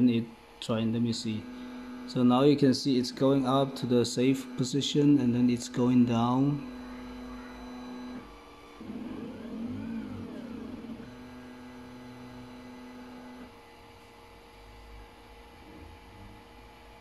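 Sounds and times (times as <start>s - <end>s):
stepper motors whining: 1.3s - 13.5s.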